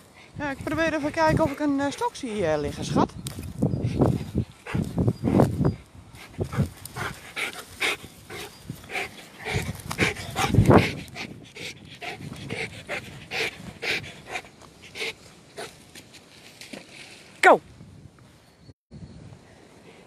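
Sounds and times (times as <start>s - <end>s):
dog panting: 0.1s - 2.3s, 3.8s - 5.6s, 6.2s - 15.8s.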